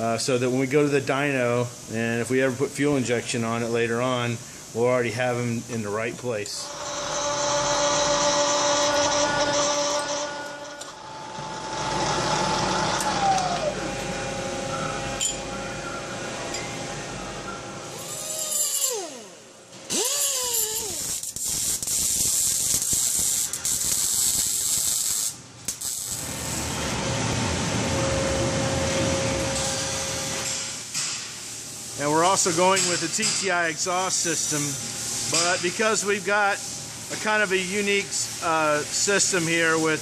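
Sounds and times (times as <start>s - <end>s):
welding crackling hiss: 0.0s - 11.1s, 17.8s - 27.0s, 29.4s - 40.0s
milling machine spindle whine: 6.5s - 20.5s.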